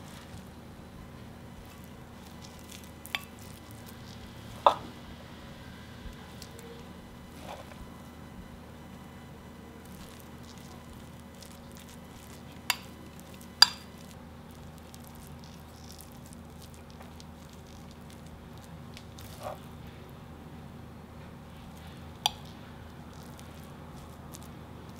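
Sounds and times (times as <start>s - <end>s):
spoon scooping wet grain salad: 0.0s - 0.5s, 1.5s - 4.8s, 6.1s - 7.9s, 9.8s - 19.8s, 21.6s - 24.9s.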